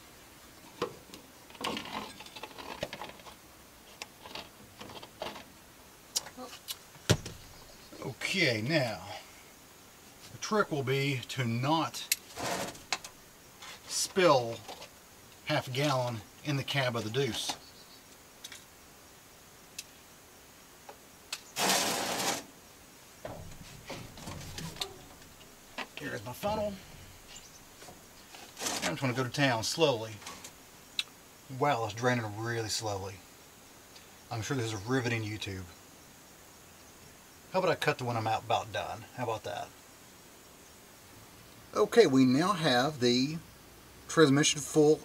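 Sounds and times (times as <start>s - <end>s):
scratchy plastic rustle: 12.2s - 13.0s, 21.6s - 22.5s, 26.0s - 29.2s.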